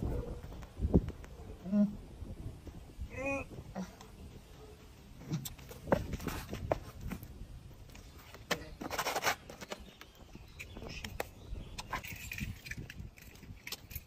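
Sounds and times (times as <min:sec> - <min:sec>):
hands and sneakers on concrete: 0:05.2 - 0:12.2.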